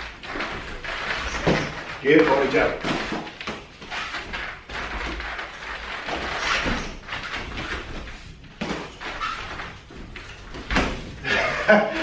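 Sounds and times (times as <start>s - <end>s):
boxing gloves thudding: 0.2s - 11.2s.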